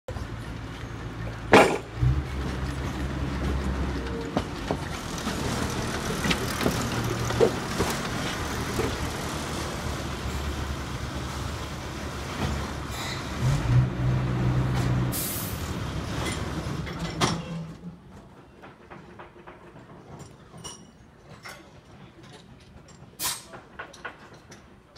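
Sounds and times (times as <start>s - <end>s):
diesel engine running: 0.2s - 16.8s
short hiss of air: 15.2s - 15.7s, 23.2s - 23.5s.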